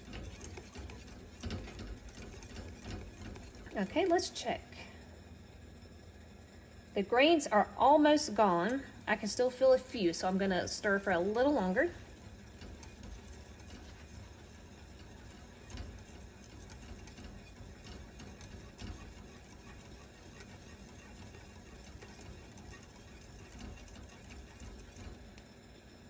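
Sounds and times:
whisk clicking against bowl: 0.0 - 4.4, 10.3 - 25.5
whisk stirring in a bowl: 0.0 - 6.8, 7.4 - 26.0.

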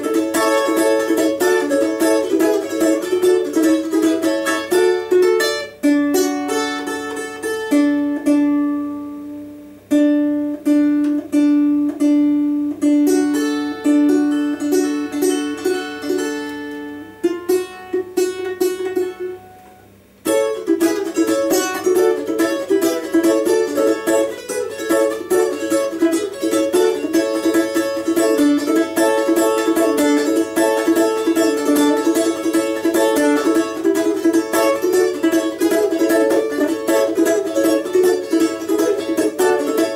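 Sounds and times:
balalaika plucked melody: 0.0 - 39.9
balalaika strumming chords: 0.0 - 39.9.

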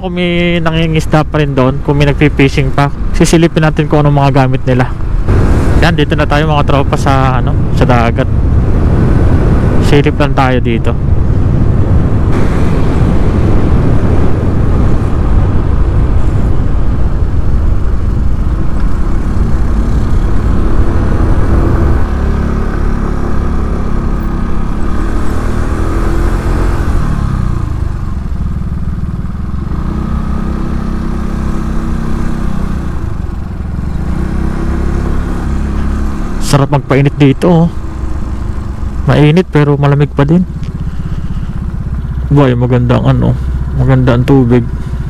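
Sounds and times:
motorcycle engine running: 0.0 - 45.0
wind noise on microphone: 5.0 - 6.2, 6.8 - 28.1.

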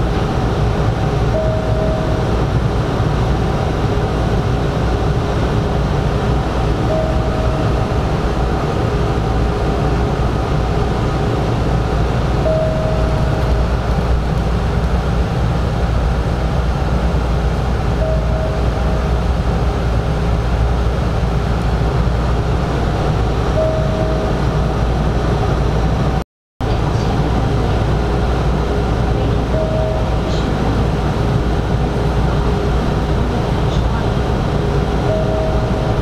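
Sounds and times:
train low rumble: 0.0 - 36.0
short beep: 12.4 - 13.4.

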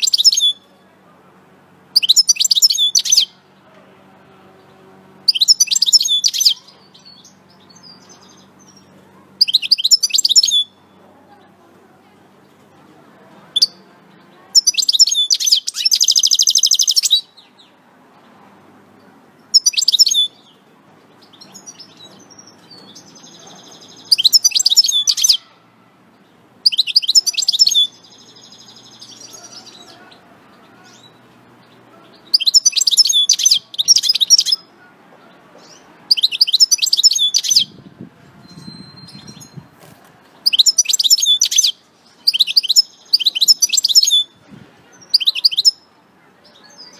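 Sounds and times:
finch twittering song: 0.0 - 0.7, 1.9 - 3.4, 5.2 - 11.0, 14.6 - 17.7, 19.4 - 25.5, 26.2 - 34.7, 35.6 - 39.8, 40.4 - 46.9.

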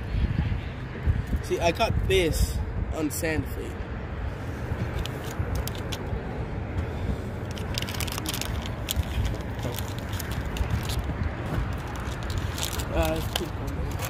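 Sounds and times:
wind buffeting microphone: 0.0 - 14.0
sharp clicks and rattles: 4.9 - 6.1, 7.4 - 14.0.

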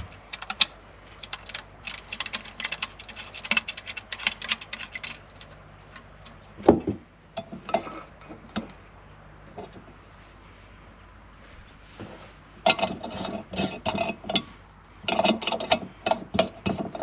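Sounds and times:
small metal parts clicking: 0.0 - 6.4.

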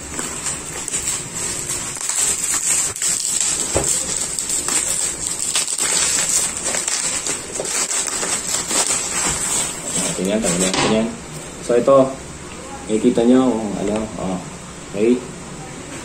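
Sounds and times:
packaging crinkling and tearing: 0.0 - 10.9.

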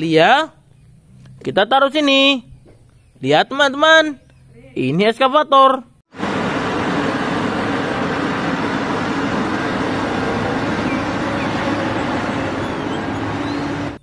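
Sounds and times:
diesel engine rumbling: 6.1 - 14.0.

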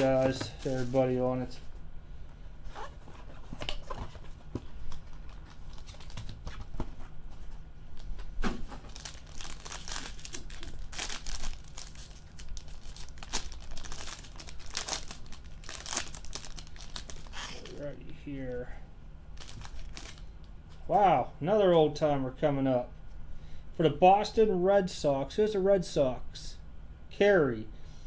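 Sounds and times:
low steady hum: 0.0 - 28.0
foil wrapper crinkling and tearing: 8.8 - 17.8, 19.4 - 20.3.

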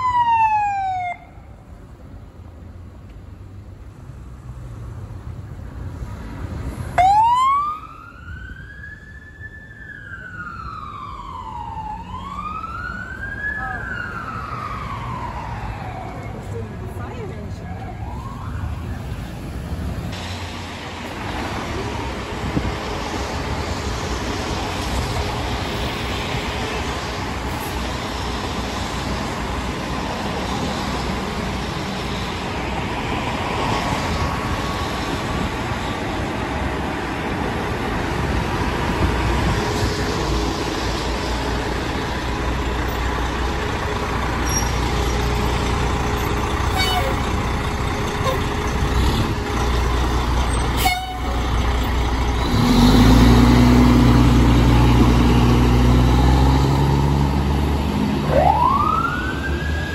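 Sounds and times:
diesel truck engine rumbling: 12.6 - 59.9.

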